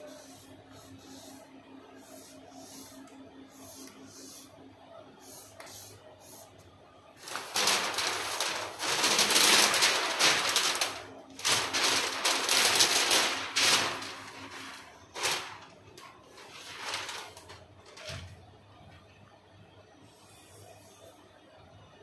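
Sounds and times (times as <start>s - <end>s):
paper rustling: 7.2s - 18.3s.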